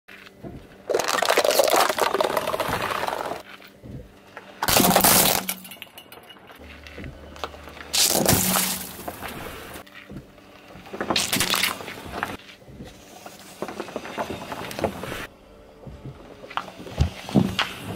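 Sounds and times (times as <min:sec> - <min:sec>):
plastic cups crunching: 0:00.1 - 0:03.6, 0:07.4 - 0:09.9, 0:10.9 - 0:12.4
bag of beads crunching: 0:00.9 - 0:03.4, 0:07.9 - 0:09.5, 0:11.2 - 0:11.9
glass light bulb shattering: 0:04.7 - 0:06.6, 0:07.9 - 0:09.2.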